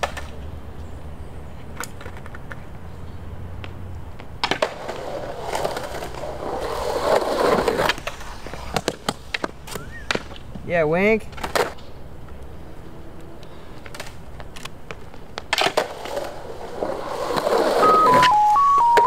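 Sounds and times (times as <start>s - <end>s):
skateboard clacks: 0.0s - 0.4s, 1.7s - 2.7s, 3.6s - 10.6s, 11.3s - 11.8s, 13.8s - 19.0s
skateboard wheels rolling on concrete: 0.0s - 19.0s.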